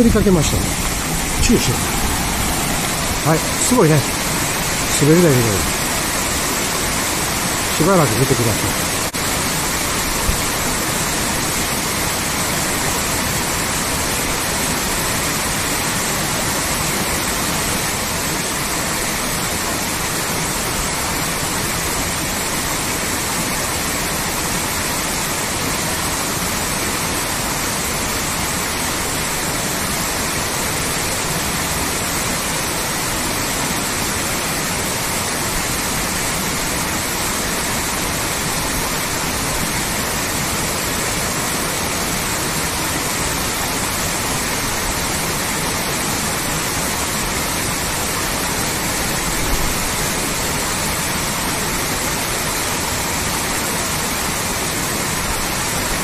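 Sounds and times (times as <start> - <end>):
waterfall rushing into pool: 0.0 - 56.0.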